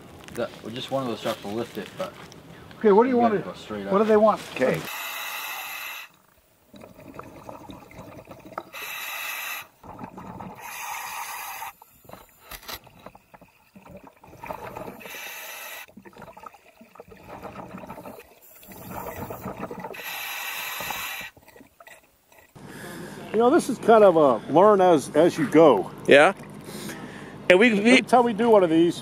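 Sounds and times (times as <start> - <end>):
regulator hissing inhales: 4.9 - 6.2, 8.7 - 9.8, 10.6 - 12.6, 14.9 - 15.9, 18.4 - 21.4, 26.6 - 27.5
bubbling exhales: 4.9 - 22.6.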